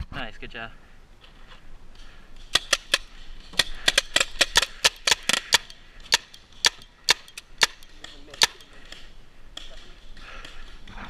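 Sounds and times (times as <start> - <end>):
paintball markers firing: 2.4 - 10.8.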